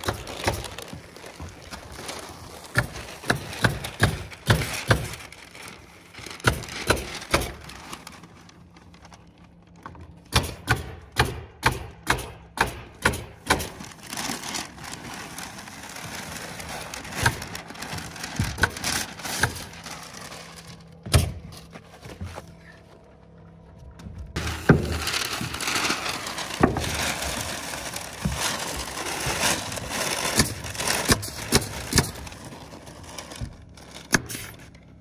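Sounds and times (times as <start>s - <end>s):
paper backing peeling: 0.0s - 9.7s, 13.7s - 23.0s, 24.4s - 34.9s.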